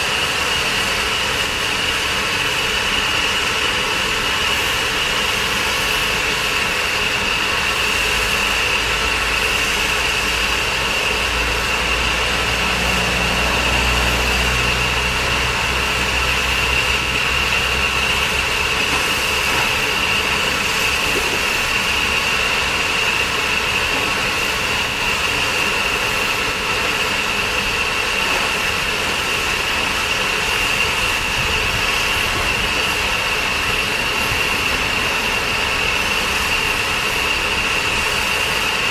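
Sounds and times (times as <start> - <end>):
steam hissing: 0.0 - 38.9.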